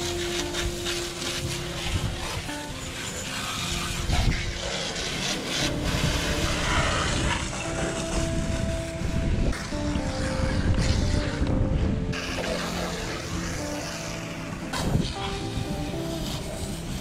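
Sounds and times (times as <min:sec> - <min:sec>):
brush scrubbing a wet deck: 0:00.0 - 0:11.5, 0:12.2 - 0:17.0.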